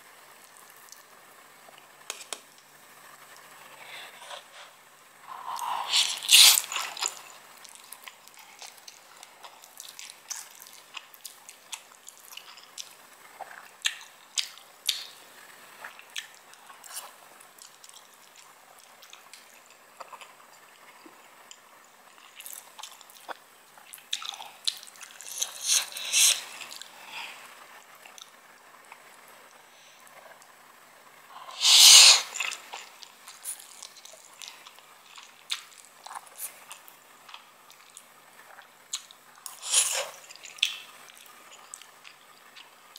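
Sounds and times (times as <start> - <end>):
person slurping noodles: 5.3 - 7.2, 25.2 - 26.8, 31.4 - 32.6, 39.5 - 40.2
wet chewing: 22.2 - 26.9, 31.6 - 42.7
small mouth clicks: 24.2 - 26.9.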